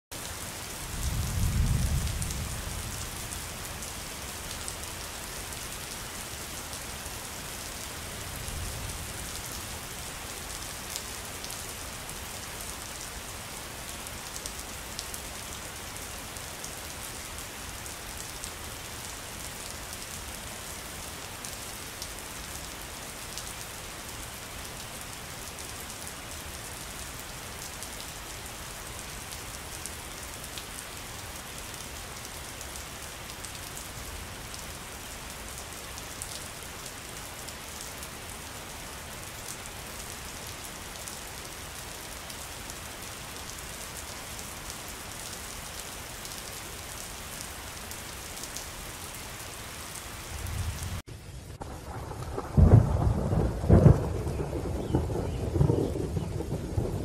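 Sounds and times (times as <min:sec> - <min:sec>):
steady rain falling: 0:00.1 - 0:57.0.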